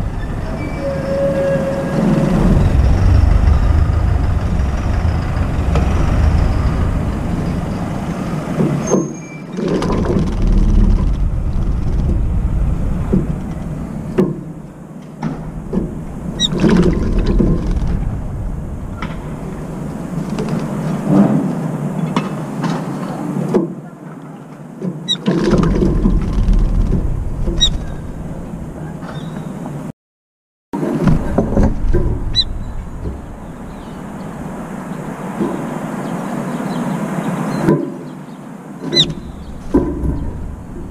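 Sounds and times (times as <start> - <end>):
steady low rumble: 0.0 - 0.8, 1.7 - 8.8, 9.9 - 21.1, 25.7 - 29.0, 31.1 - 36.9, 39.0 - 40.9.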